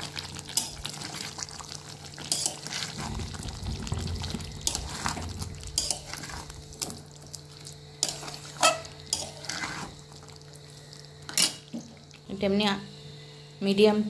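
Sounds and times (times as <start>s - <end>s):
metal spatula scraping pan: 8.0s - 10.0s.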